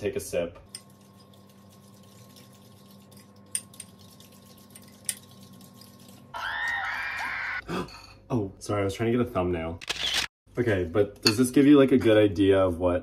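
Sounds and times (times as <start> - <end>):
metal spoon stirring in bowl: 0.7 - 6.3.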